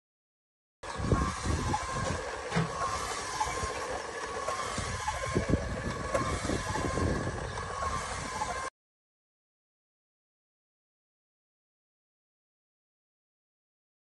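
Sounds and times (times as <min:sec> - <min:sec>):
rotisserie motor whine: 0:00.8 - 0:08.7.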